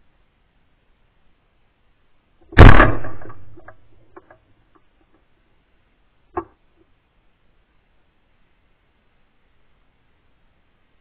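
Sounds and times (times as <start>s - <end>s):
shotgun shot: 2.5s - 3.7s
short sharp crack: 2.5s - 4.4s.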